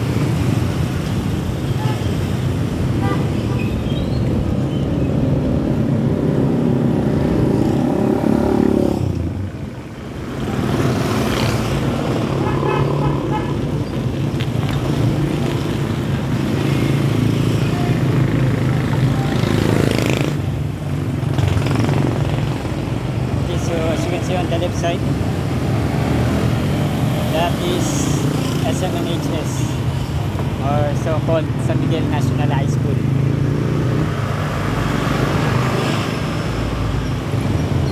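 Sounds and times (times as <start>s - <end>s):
motorcycle traffic droning: 0.0s - 37.9s.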